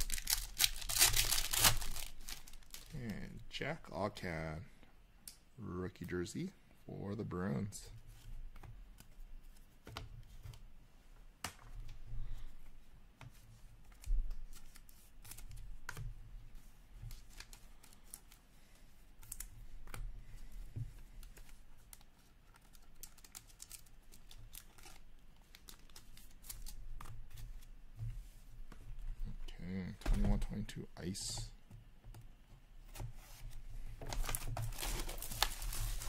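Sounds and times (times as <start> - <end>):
plastic card sleeves clicking and crinkling: 0.0 - 3.0, 13.8 - 16.0, 21.2 - 27.7.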